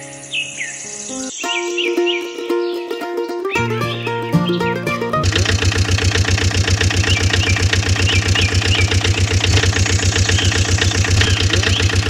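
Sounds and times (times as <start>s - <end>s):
diesel engine chugging: 4.9s - 12.0s.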